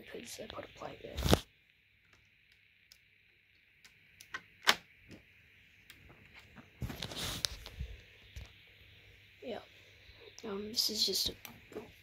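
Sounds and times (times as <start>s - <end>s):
rustling: 6.2s - 8.1s.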